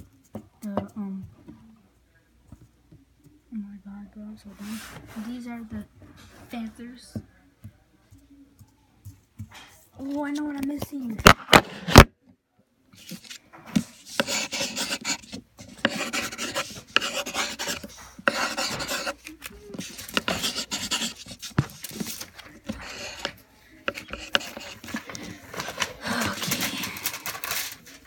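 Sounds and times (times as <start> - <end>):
pencil scribbling on paper: 13.0 - 26.9.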